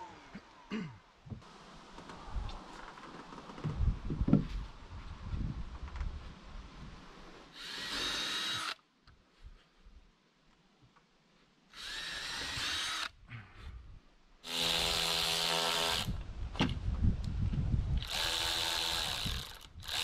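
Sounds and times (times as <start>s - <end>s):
power drill whining: 7.6s - 8.8s, 11.8s - 13.1s, 14.4s - 16.2s, 18.0s - 20.0s.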